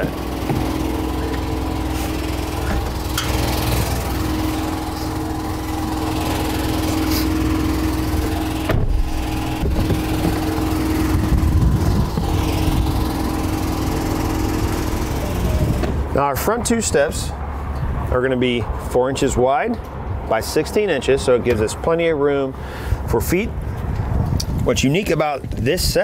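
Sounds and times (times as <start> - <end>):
engine running steadily: 0.0 - 26.0
sharp knocks: 8.7 - 10.4.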